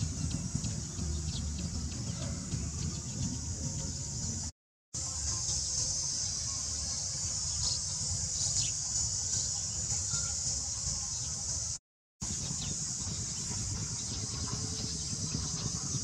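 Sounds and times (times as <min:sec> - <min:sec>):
low unsteady rumble: 0:00.0 - 0:04.5, 0:12.2 - 0:16.0
insects droning: 0:00.0 - 0:16.0.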